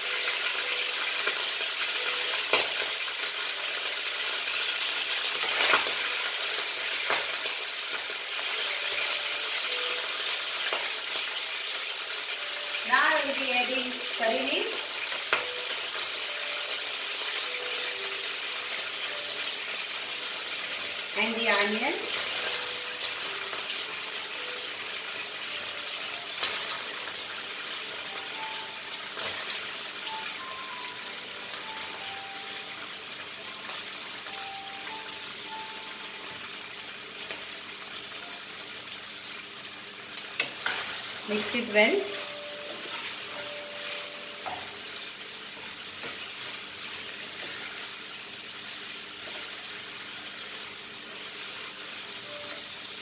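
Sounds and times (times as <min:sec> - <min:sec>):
meat sizzling in a pan: 0:00.0 - 0:53.0
faint soft tune: 0:22.1 - 0:33.6, 0:34.2 - 0:38.7, 0:40.6 - 0:45.0, 0:51.2 - 0:53.0.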